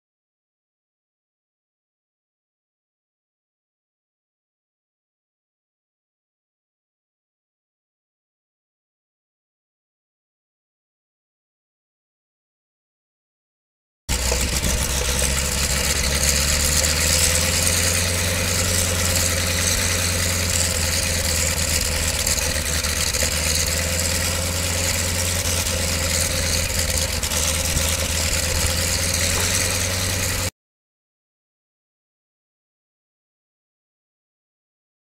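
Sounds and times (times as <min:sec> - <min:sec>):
biplane engine idling: 0:14.1 - 0:30.5.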